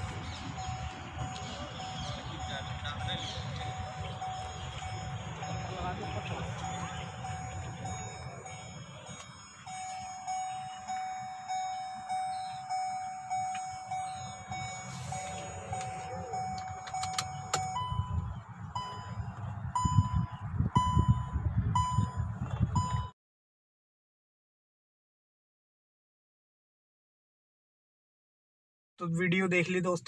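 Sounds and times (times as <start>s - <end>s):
dashboard warning chime: 0.0s - 23.2s
clicks: 15.8s - 17.8s.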